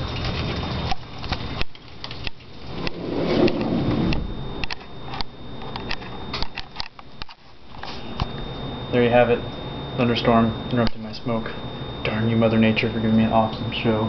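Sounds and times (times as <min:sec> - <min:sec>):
rain: 0:00.0 - 0:06.0.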